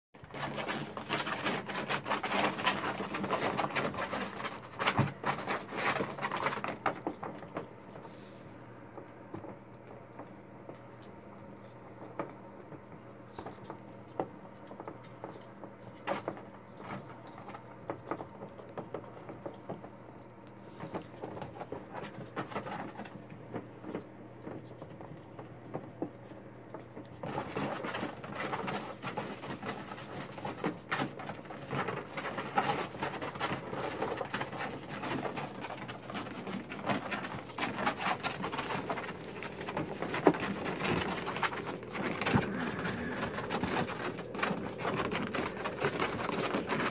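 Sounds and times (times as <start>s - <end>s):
piglets scuffling on blankets: 0.2s - 46.9s
piglets grunting: 41.8s - 44.6s.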